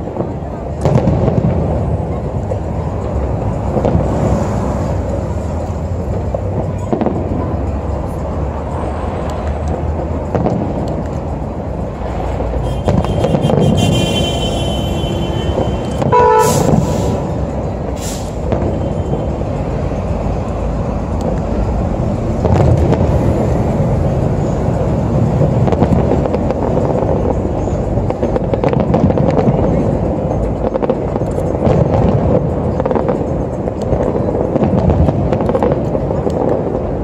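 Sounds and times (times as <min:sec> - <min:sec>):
fireworks booming: 0:00.0 - 0:08.3, 0:09.2 - 0:11.4, 0:12.0 - 0:37.0
horn-like tone: 0:12.6 - 0:16.9.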